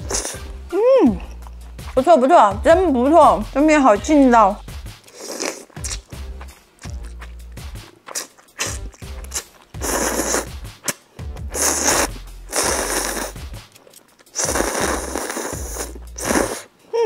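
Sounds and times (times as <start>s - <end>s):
noodles being slurped: 0.0s - 0.6s, 5.0s - 16.7s.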